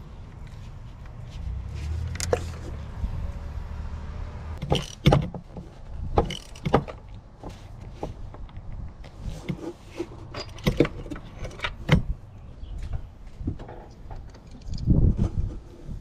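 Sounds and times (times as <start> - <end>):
ratchet tools clicking and knocking: 4.6 - 5.5, 6.2 - 7.1.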